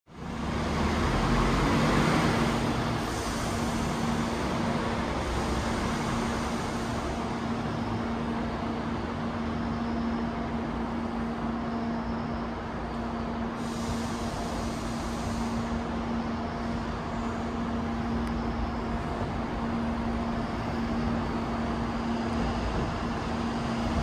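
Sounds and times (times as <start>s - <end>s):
tram equipment humming: 0.1s - 24.0s.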